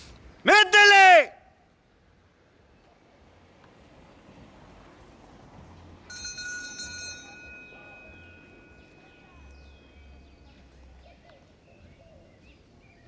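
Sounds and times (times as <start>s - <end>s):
low outdoor background noise: 0.0s - 13.0s
bell-like ringing: 6.1s - 10.6s.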